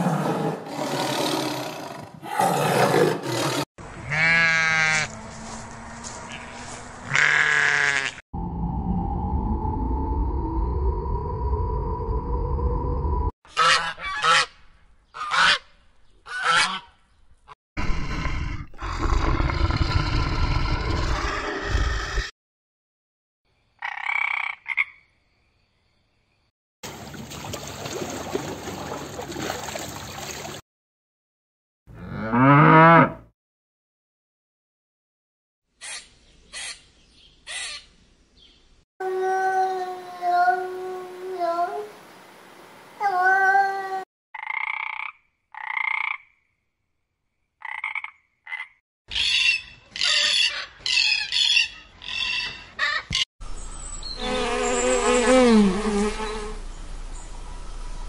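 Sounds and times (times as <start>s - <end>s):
sheep bleating: 4.0s - 5.1s, 6.3s - 8.2s
frog croaking: 23.8s - 25.1s, 44.4s - 46.4s, 47.6s - 48.8s.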